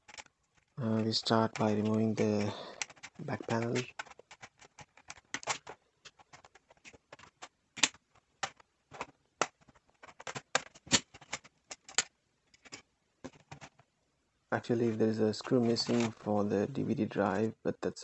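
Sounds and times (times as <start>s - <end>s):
plastic panel clicks and scrapes: 0.0s - 13.8s.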